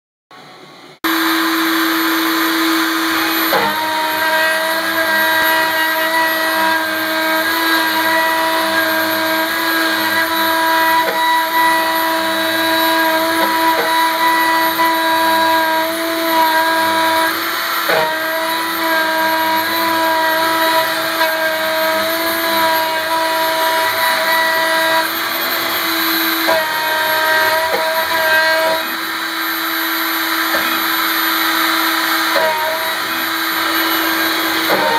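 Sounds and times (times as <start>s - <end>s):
high cutting tone: 1.0s - 17.4s
milling spindle whine: 1.0s - 34.9s.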